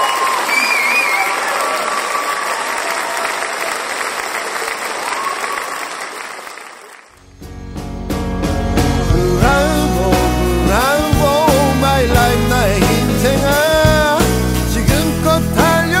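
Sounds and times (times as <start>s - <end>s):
crowd applauding and cheering: 0.0s - 7.3s
recorded music with steady beat: 7.4s - 16.0s.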